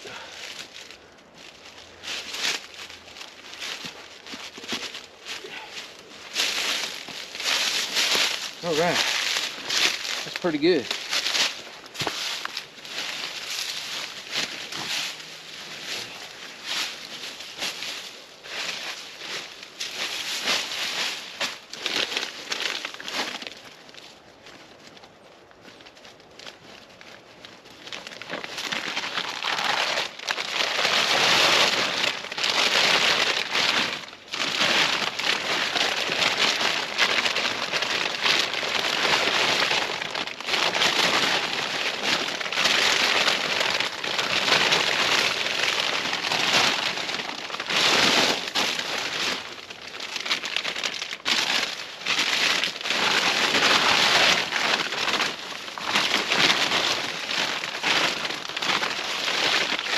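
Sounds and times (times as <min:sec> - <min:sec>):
fabric bags rustling: 0:00.0 - 0:59.9.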